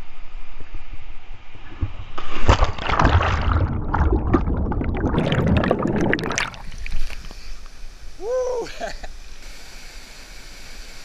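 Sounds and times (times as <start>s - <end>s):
loud splash into water: 2.4s - 7.0s
underwater bubbles rushing: 2.4s - 7.3s.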